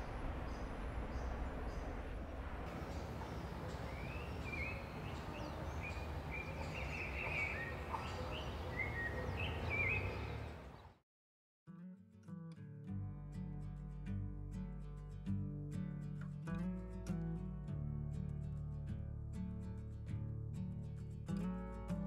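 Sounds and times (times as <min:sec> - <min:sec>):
steady low rumble: 0:00.0 - 0:08.0
birds chirping: 0:00.0 - 0:11.0
acoustic guitar: 0:11.7 - 0:22.0.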